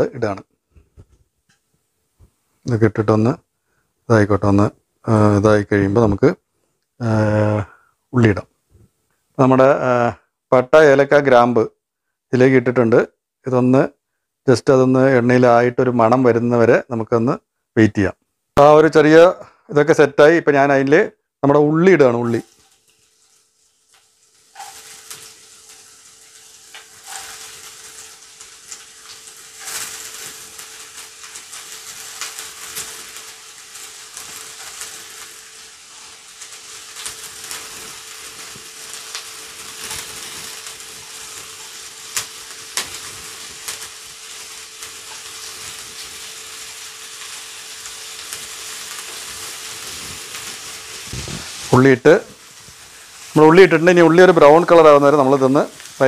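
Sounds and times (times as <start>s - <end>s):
onion sizzling in oil: 7.0s - 8.4s, 21.6s - 56.0s
sharp crackles and pops: 22.0s - 56.0s.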